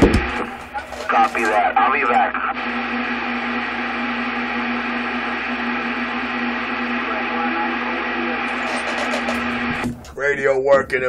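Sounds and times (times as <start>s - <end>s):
radio static hiss: 0.0s - 10.4s
low hum tone: 2.5s - 10.0s.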